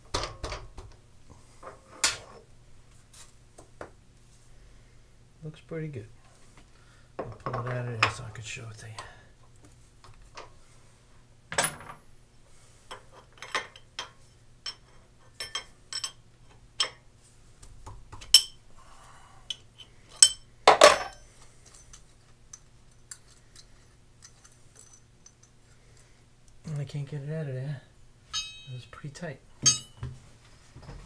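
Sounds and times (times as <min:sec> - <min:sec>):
faint steady hum: 0:00.0 - 0:31.0
metal tools clinking: 0:20.1 - 0:26.1, 0:28.3 - 0:29.0, 0:29.6 - 0:30.0.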